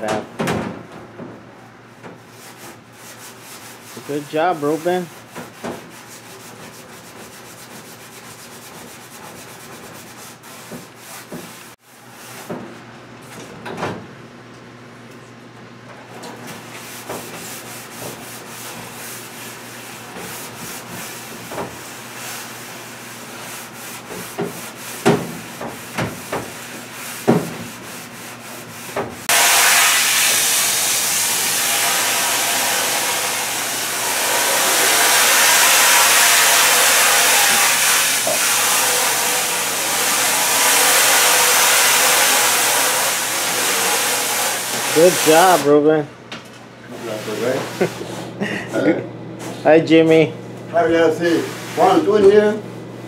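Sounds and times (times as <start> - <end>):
hands scrubbing mat in sink: 2.2 - 12.6, 16.5 - 45.7
water spraying onto mat: 29.3 - 45.6.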